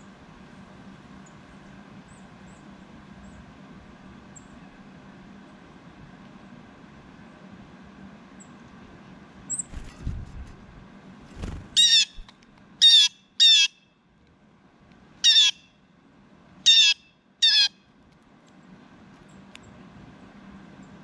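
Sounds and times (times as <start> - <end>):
blue jay calling: 11.7 - 13.8, 15.2 - 15.8, 16.6 - 17.8.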